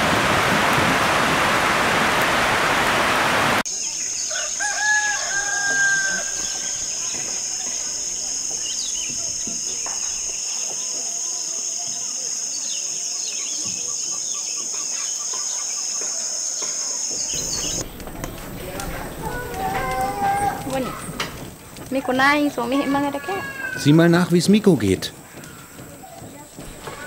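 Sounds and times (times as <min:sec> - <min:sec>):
rooster crowing: 0:04.3 - 0:07.7, 0:18.6 - 0:21.2, 0:22.6 - 0:24.1.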